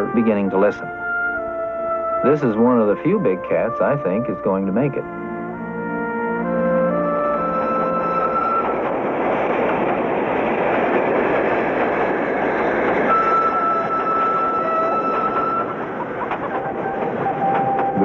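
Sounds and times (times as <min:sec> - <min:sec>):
brass music: 0:00.0 - 0:09.5
steam locomotive rushing steam: 0:06.9 - 0:18.0.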